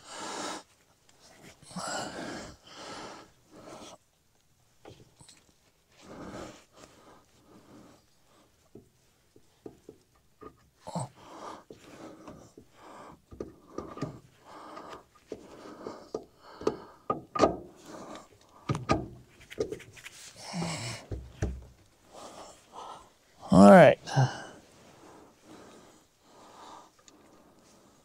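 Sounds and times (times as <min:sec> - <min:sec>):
person breathing hard: 0:00.0 - 0:04.0, 0:10.9 - 0:18.8, 0:20.3 - 0:21.2, 0:22.0 - 0:28.0.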